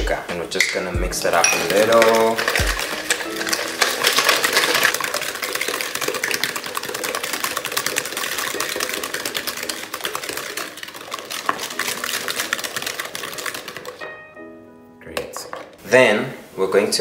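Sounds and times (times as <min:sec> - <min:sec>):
whisk clattering in plastic bowl: 0:00.6 - 0:14.1.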